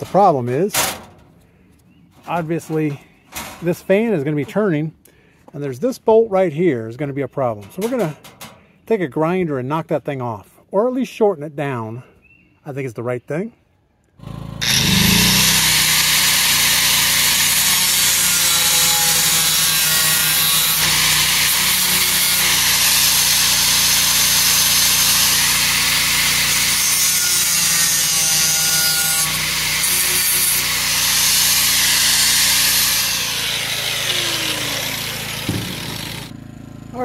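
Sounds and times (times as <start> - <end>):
angle grinder grinding metal: 14.2 - 36.4.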